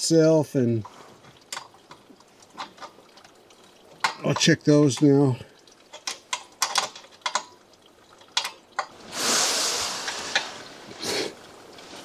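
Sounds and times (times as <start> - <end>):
sharp clicks and taps on metal: 5.8 - 7.6, 8.2 - 8.9
person sliding across a mat: 9.0 - 12.0.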